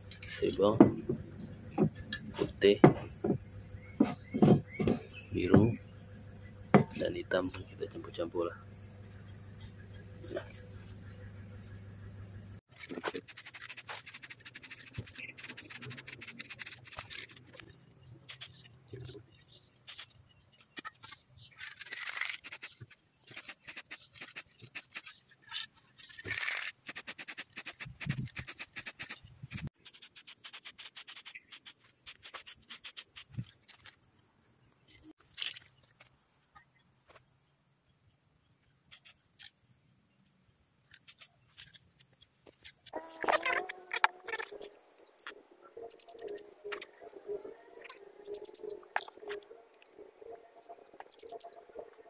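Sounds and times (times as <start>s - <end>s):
spray can hissing: 26.9s - 33.2s.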